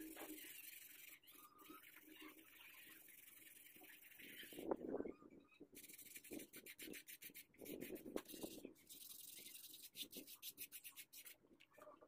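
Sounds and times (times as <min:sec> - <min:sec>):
sandpaper rasping on resin: 0:00.0 - 0:04.7, 0:05.8 - 0:11.4.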